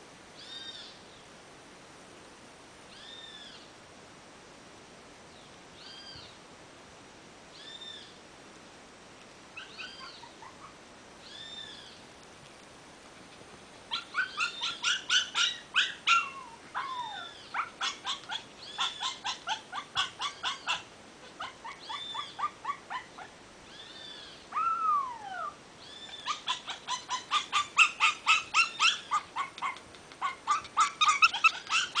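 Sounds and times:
puppies whimpering and yapping: 0:09.6 - 0:10.8, 0:13.2 - 0:23.3, 0:24.5 - 0:32.0.

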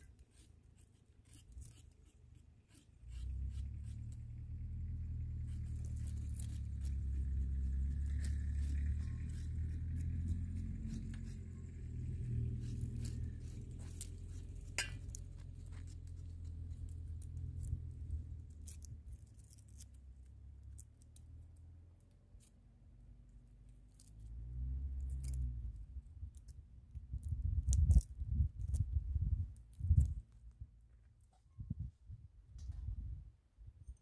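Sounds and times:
knife peeling and cutting squash: 0:00.0 - 0:21.4, 0:23.7 - 0:30.4
wind rumble on microphone: 0:25.5 - 0:30.8, 0:31.4 - 0:34.0.

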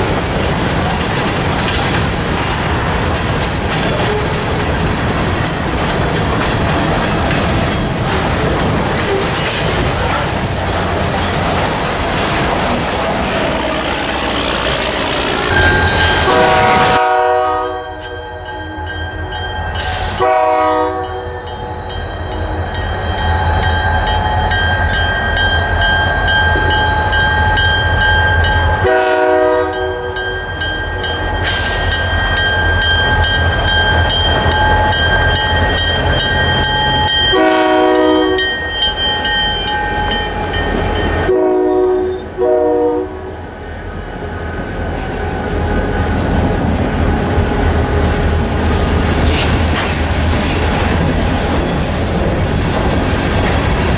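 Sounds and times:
train wheels on rails: 0:00.0 - 0:53.9
locomotive air horn blasts: 0:16.2 - 0:18.0, 0:20.2 - 0:21.3, 0:28.8 - 0:30.1, 0:37.3 - 0:38.5, 0:41.3 - 0:43.4.

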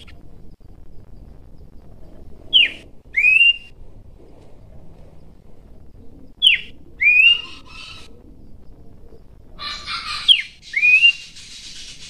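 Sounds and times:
bird whistling song: 0:02.5 - 0:03.8, 0:06.2 - 0:08.1, 0:09.7 - 0:12.0
bird harsh chattering: 0:09.6 - 0:12.0.

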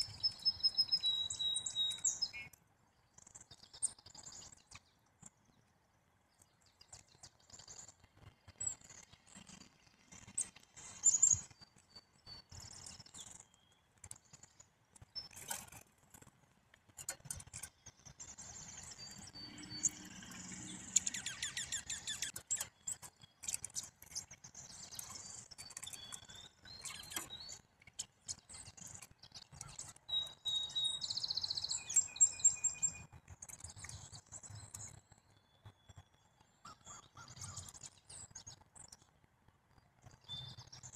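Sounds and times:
bird trill: 0:00.0 - 0:02.6, 0:17.0 - 0:27.6, 0:28.3 - 0:38.0
songbirds chirping: 0:00.0 - 0:40.9.

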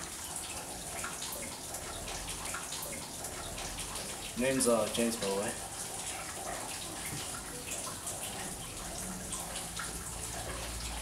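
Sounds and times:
raindrops pattering: 0:00.0 - 0:11.0
steady rain hiss: 0:03.6 - 0:07.8.

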